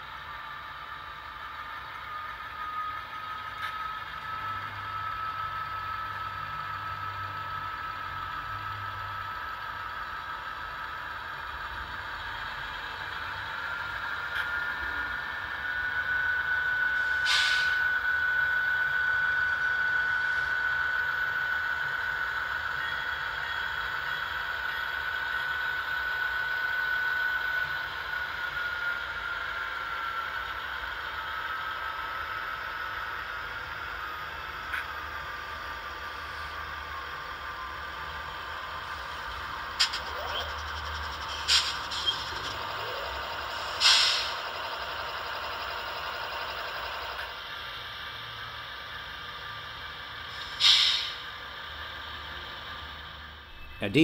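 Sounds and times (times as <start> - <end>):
model locomotive diesel engine sound: 0.0 - 54.0
steady whine: 0.0 - 54.0
short hiss: 17.2 - 17.8, 50.4 - 51.2.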